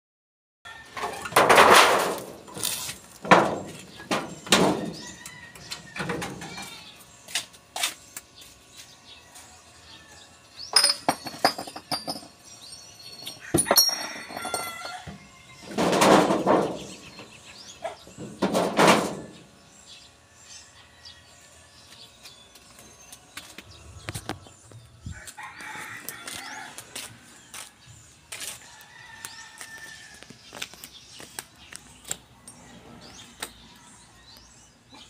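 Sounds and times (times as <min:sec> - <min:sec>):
knocks and clatters: 0:10.8 - 0:12.4, 0:15.7 - 0:17.0, 0:18.2 - 0:19.4.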